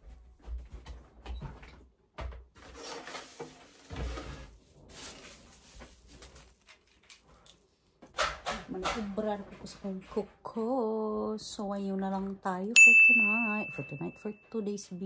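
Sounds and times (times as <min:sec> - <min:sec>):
rustling and scraping: 0:02.5 - 0:07.5.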